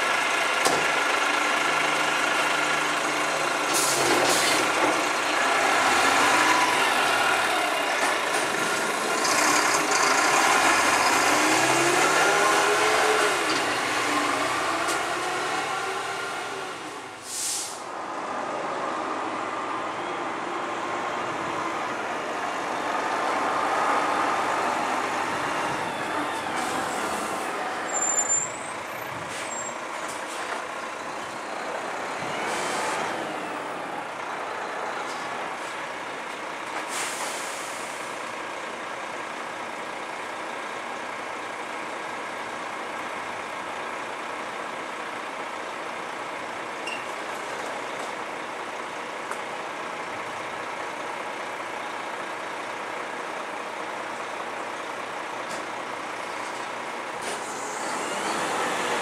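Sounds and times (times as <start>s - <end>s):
garbage truck diesel engine: 0.0s - 59.0s
air brake hisses: 17.2s - 17.9s, 36.9s - 38.2s.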